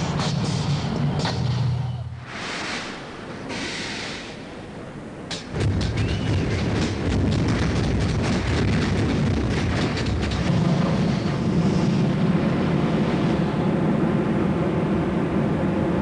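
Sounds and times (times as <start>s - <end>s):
rush of flame rumbling: 5.5s - 16.0s.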